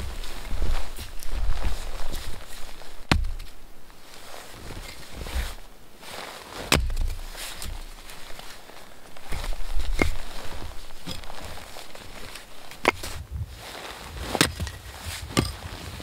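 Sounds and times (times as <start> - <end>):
clothing rustle: 0.0 - 16.0
blade striking log: 3.0 - 3.6, 6.7 - 7.8
soft thumps of wood: 3.1 - 3.5.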